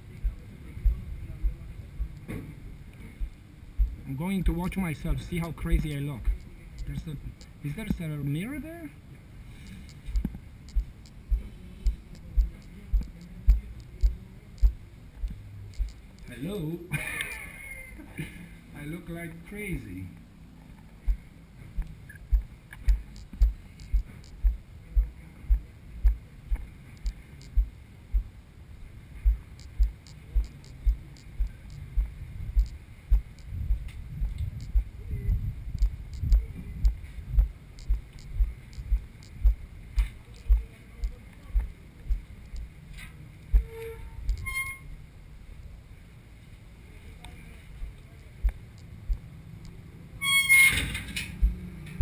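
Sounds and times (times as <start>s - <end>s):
steady low rumble: 0.0s - 52.0s
footsteps dull thuds: 3.2s - 4.0s, 21.0s - 28.4s, 29.2s - 42.7s, 51.3s - 52.0s.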